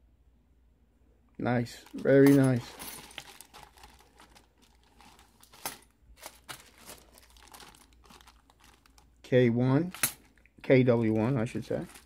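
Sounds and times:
plastic bag crinkling: 0:01.7 - 0:09.2, 0:09.9 - 0:12.0.

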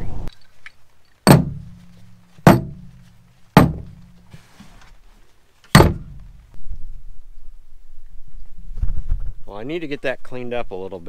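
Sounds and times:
metal tools knocking on tailgate: 0:01.3 - 0:01.8, 0:02.5 - 0:02.9, 0:03.6 - 0:04.1, 0:05.8 - 0:06.3.

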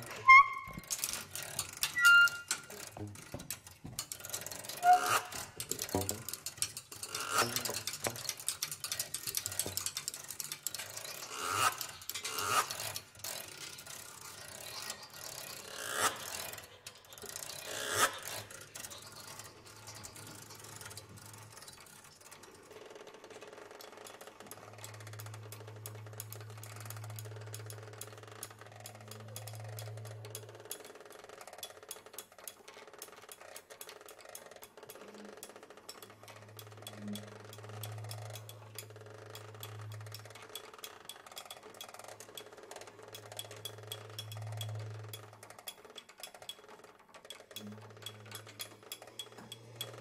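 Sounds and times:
objects scraping and rattling: 0:00.0 - 0:30.9.

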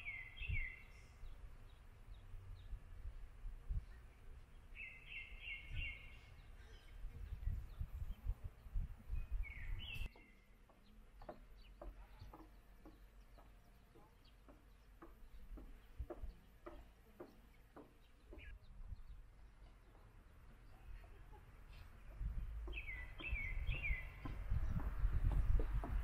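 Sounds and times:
wind rumbling on microphone: 0:00.0 - 0:10.2, 0:18.3 - 0:19.4, 0:22.0 - 0:26.0
songbirds chirping: 0:00.0 - 0:26.0.

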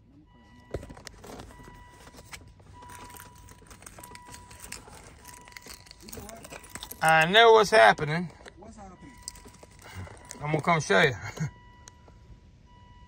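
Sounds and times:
faint high steady tone: 0:00.0 - 0:13.0
handling rustles and taps: 0:00.6 - 0:11.1.

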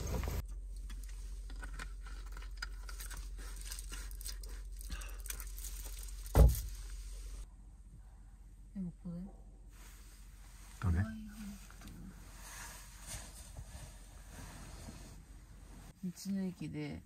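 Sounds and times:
gear rustling and clicking: 0:00.0 - 0:06.8
low steady hum: 0:00.0 - 0:17.0.

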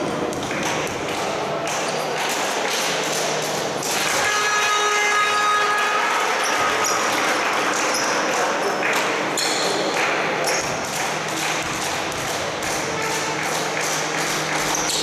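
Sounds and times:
ball dribbling: 0:00.0 - 0:01.3, 0:10.4 - 0:15.0
echoing din of voices: 0:00.0 - 0:15.0
basketball shoes squeaking: 0:06.4 - 0:15.0.

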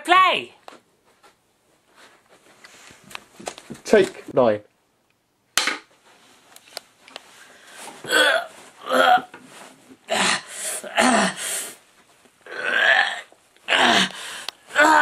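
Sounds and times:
man gasping and groaning: 0:10.1 - 0:11.8, 0:12.6 - 0:15.0.

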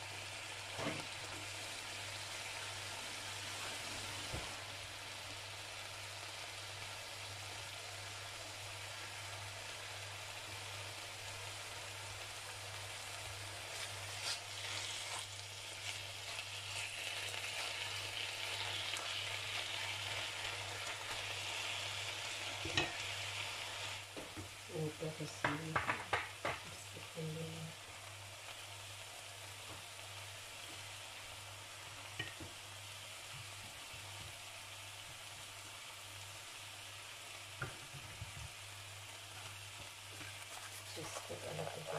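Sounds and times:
chicken frying in oil: 0:00.0 - 0:41.9
spatula knocking and scraping pan: 0:25.4 - 0:26.7.

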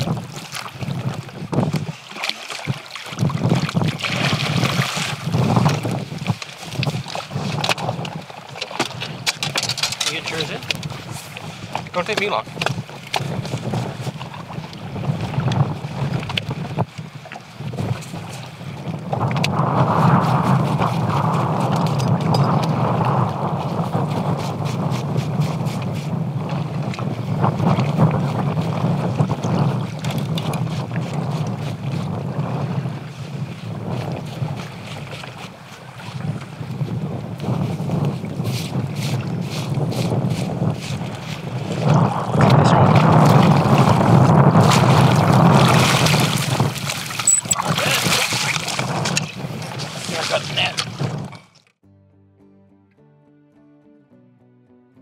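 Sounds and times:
water splashing: 0:00.0 - 0:16.6, 0:38.1 - 0:51.7
boat motor running: 0:00.0 - 0:17.4
wind buffeting microphone: 0:00.0 - 0:51.5
water rushing along hull: 0:00.0 - 0:51.7.

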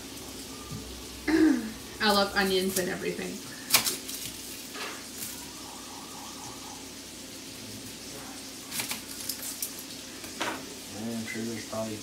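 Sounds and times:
sausage sizzling in a frying pan: 0:00.0 - 0:12.0.

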